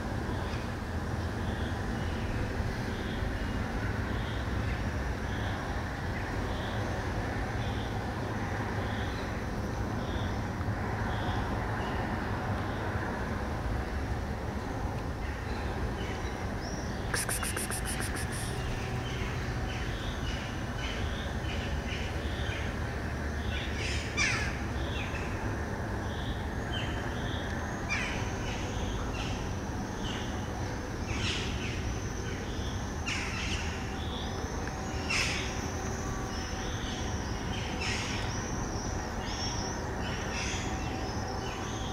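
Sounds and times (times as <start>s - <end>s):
rapid bird rattle: 17.2s - 18.6s.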